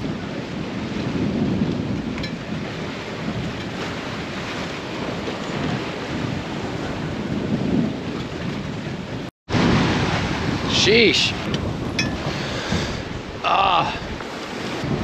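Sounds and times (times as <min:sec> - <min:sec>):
water rushing along hull: 0:00.0 - 0:15.0
wind buffeting microphone: 0:00.0 - 0:15.0.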